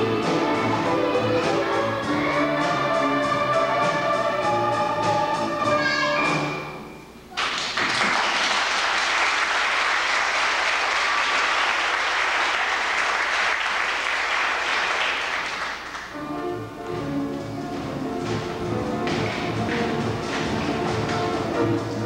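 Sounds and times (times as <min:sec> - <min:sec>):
music: 0:00.0 - 0:07.3, 0:16.0 - 0:22.0
audience applauding: 0:07.3 - 0:16.1.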